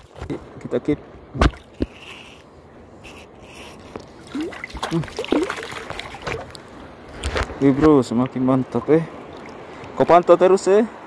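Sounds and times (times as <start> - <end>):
seawater sloshing and trickling: 3.4 - 10.0.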